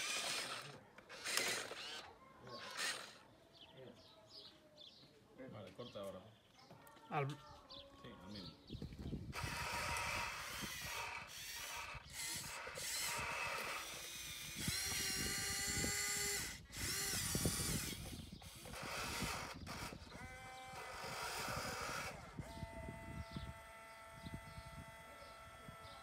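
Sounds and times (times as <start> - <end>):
toy excavator motors whining: 0.0 - 3.3, 9.3 - 26.0.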